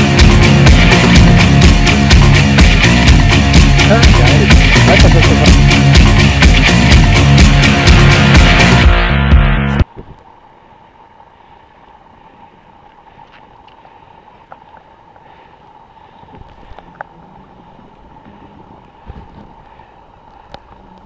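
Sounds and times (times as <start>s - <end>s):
low rumbles: 0.0s - 10.2s.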